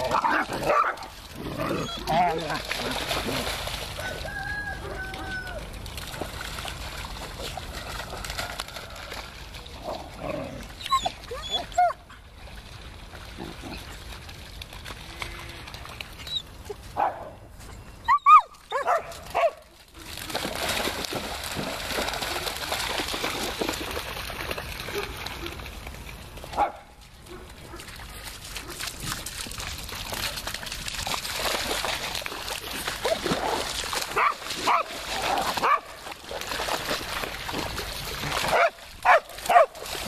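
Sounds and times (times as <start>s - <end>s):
dogs barking and yelping: 0.0s - 2.4s, 10.7s - 12.1s, 18.0s - 19.6s, 34.2s - 35.9s, 38.5s - 39.8s
water splashing: 0.0s - 17.0s, 18.7s - 40.0s.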